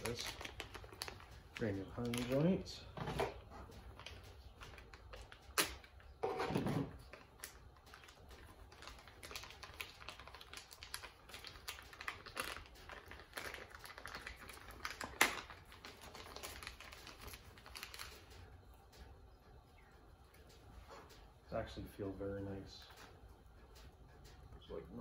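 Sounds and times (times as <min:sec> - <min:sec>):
plastic bag crinkling: 0:00.0 - 0:18.5.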